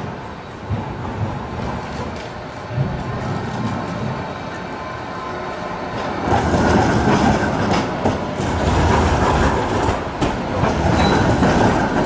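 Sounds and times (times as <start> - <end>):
tram wheels rumbling on rails: 0.0 - 12.0
wheels clacking over track joints: 6.0 - 12.0.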